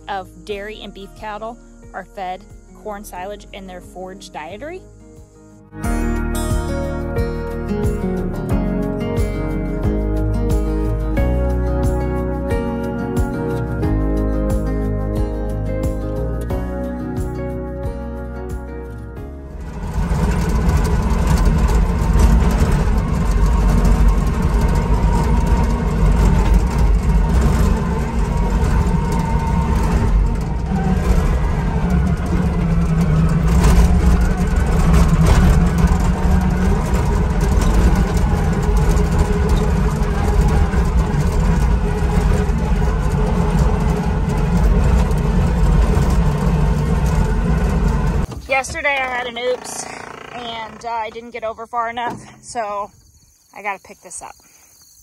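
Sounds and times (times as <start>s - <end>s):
loader engine running: 0.0s - 52.9s
machine rattling over rough ground: 18.8s - 52.9s.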